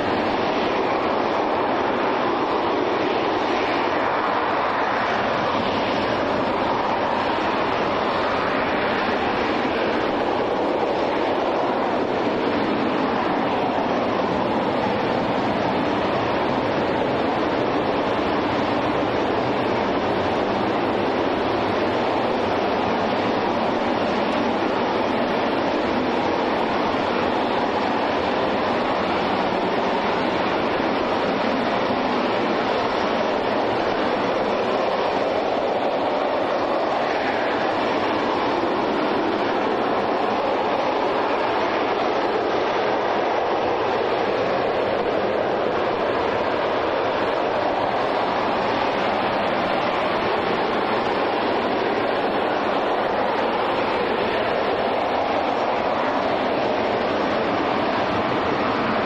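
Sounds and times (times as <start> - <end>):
rocket engine exhaust roar: 0.0 - 59.0.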